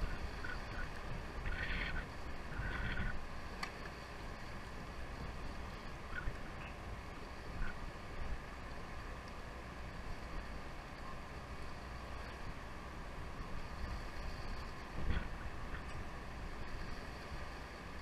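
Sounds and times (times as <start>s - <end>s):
wind and water hiss: 0.0s - 18.0s
faint light ticks: 3.6s - 4.0s, 9.2s - 9.4s.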